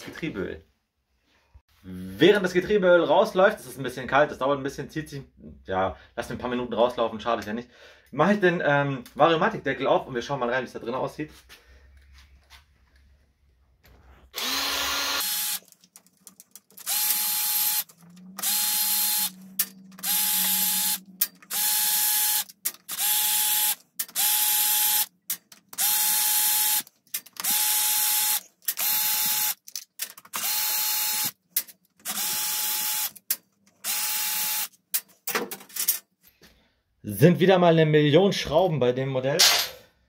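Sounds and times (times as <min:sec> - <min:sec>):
power screwdriver motor whine: 0:14.3 - 0:15.7, 0:16.8 - 0:25.1, 0:25.8 - 0:29.6, 0:30.3 - 0:31.4, 0:32.0 - 0:33.2, 0:33.8 - 0:34.7.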